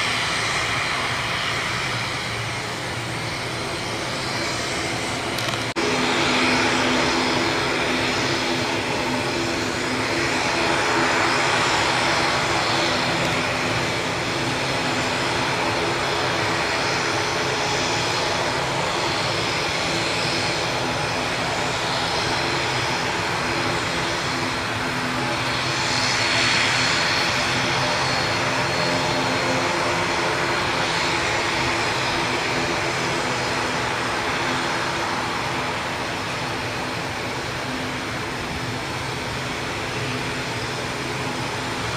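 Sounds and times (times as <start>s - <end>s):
turboprop engines droning: 0.0s - 41.9s.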